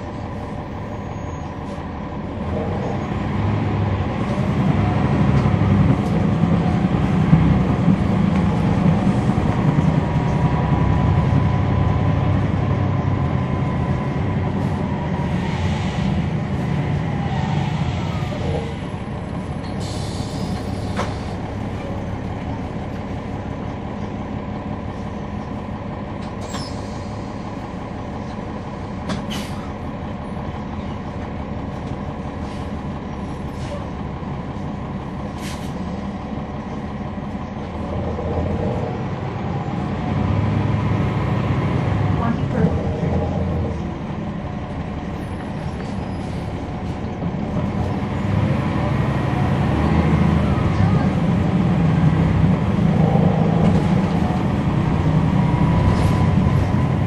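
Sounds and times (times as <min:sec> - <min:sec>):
bus diesel engine under load: 0:00.0 - 0:57.0
air brakes hiss: 0:19.6 - 0:21.4, 0:26.4 - 0:27.4, 0:29.3 - 0:29.7, 0:35.4 - 0:35.8.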